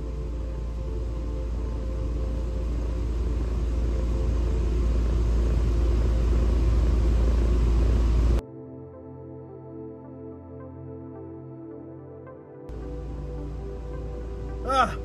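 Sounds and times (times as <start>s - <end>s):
faint hum: 0.0s - 8.4s
low rumble in car cabin: 0.0s - 8.4s.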